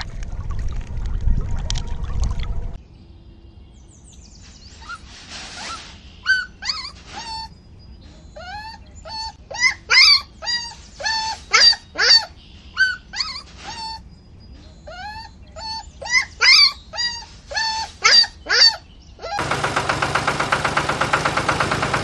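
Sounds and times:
puppy whimpering and yelping: 4.8s - 7.6s, 8.2s - 14.0s, 14.6s - 19.4s.

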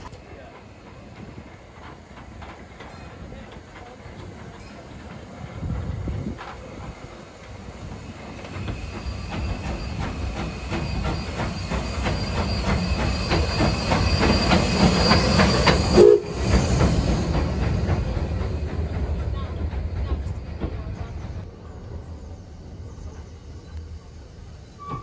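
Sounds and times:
steam engine clanks and wheel clicks: 0.0s - 5.5s, 6.4s - 21.4s
steam hissing: 0.0s - 19.2s
loud steam whistle blast: 11.0s - 16.6s.

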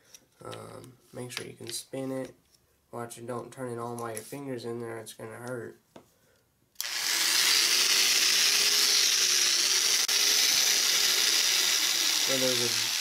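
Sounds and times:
electric clipper whining: 6.8s - 13.0s.

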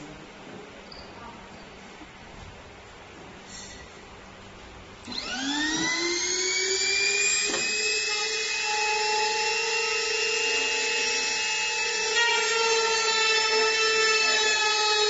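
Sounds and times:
motor whine spinning up: 5.0s - 12.2s.

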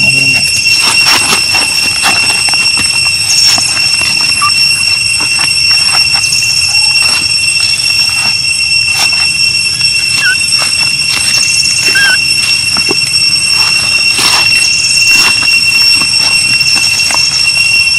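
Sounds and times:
dry leaves crackling: 0.0s - 17.9s
high-pitched insect drone: 0.0s - 17.9s
brief squeaks: 9.7s - 10.4s, 11.8s - 12.2s.

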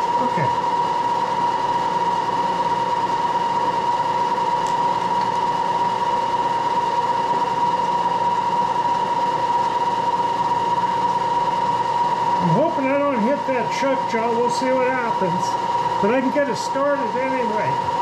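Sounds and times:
machine spindle whine: 0.0s - 18.0s.

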